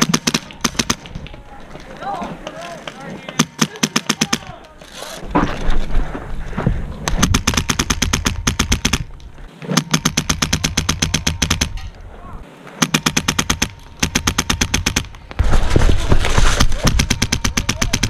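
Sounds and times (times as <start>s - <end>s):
airsoft rifle full-auto bursts: 7.2s - 9.1s, 9.8s - 11.7s, 12.8s - 15.1s.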